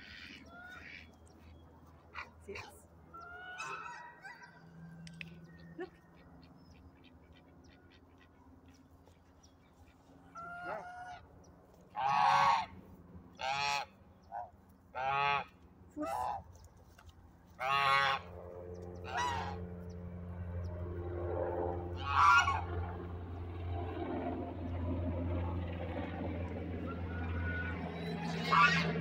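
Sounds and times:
geese honking: 0.0 - 1.6, 2.5 - 4.7, 9.8 - 11.3, 11.9 - 16.5, 17.6 - 18.4, 19.0 - 19.6, 22.0 - 22.7, 27.0 - 29.0.

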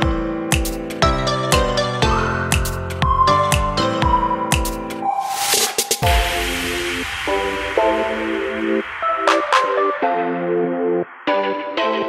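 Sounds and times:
hissing synth sweep: 5.2 - 12.0
held synth chords: 6.0 - 12.0.

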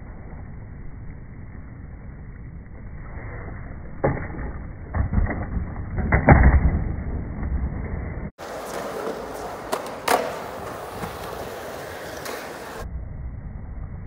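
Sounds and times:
skateboard wheels rolling on concrete: 0.0 - 12.9
skateboard clacking and slapping: 8.4 - 12.8.

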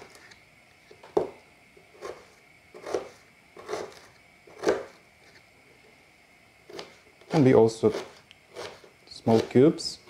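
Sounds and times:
knife cutting onion: 1.8 - 5.4, 6.6 - 10.0.

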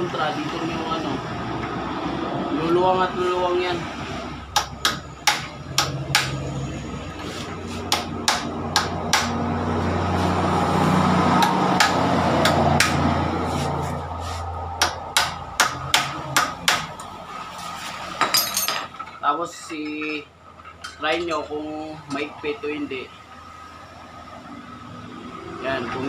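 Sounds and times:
low engine drone: 0.0 - 17.8
hammer tapping metal: 4.6 - 6.4, 7.9 - 9.4, 14.8 - 17.0.

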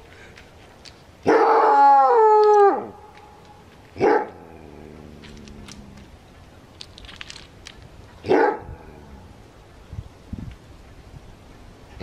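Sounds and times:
coyote howling: 1.3 - 3.0
coyote barking: 8.2 - 8.8.

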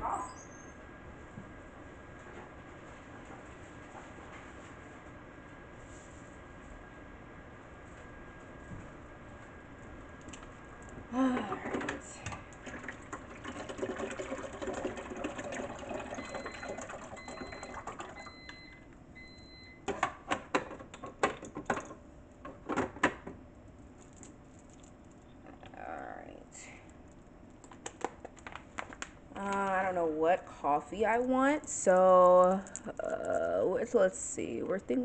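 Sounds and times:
appliance beeps: 15.6 - 20.1
rustling handling noise: 23.6 - 25.4, 26.8 - 29.9.

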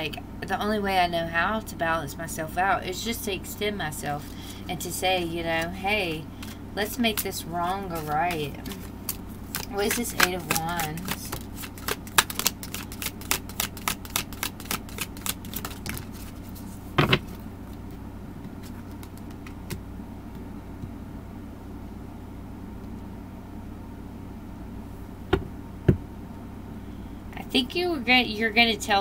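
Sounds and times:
steady low hum: 0.0 - 29.0
cards being shuffled: 5.5 - 17.8, 18.5 - 19.8.

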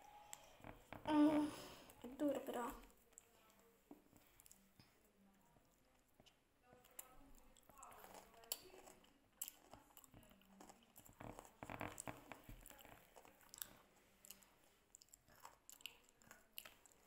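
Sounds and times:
chewing hard snack: 6.2 - 17.0.

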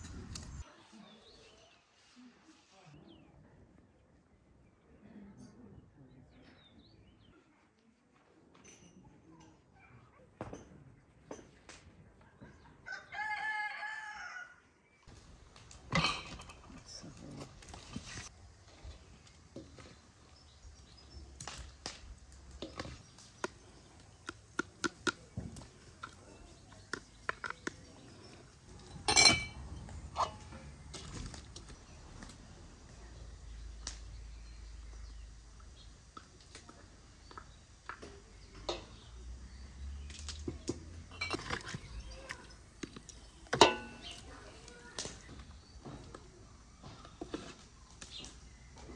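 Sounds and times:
rooster crowing: 12.8 - 14.6
metal ladle clinking on glass jars: 28.9 - 29.6, 41.1 - 41.9, 43.6 - 44.2.

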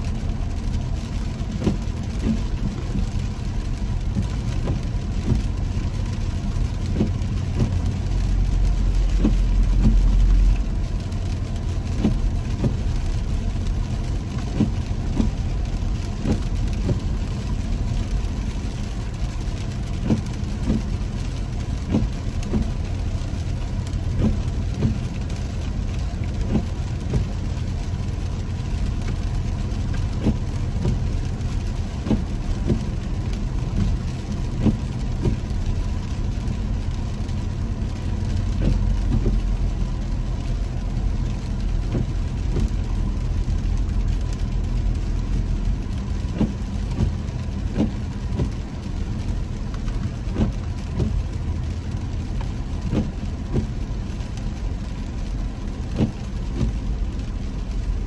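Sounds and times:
deep rumble: 0.0 - 58.0
raindrops tapping on windshield: 0.0 - 58.0
road and engine rumble: 0.0 - 58.0.

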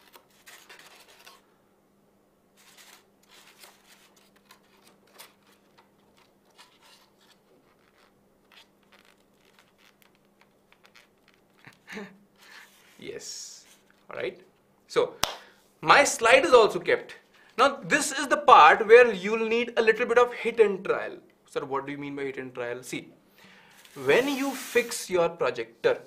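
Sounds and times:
faint steady hum: 0.0 - 24.2
scratching and rubbing on foam: 6.6 - 11.4, 23.9 - 25.0.

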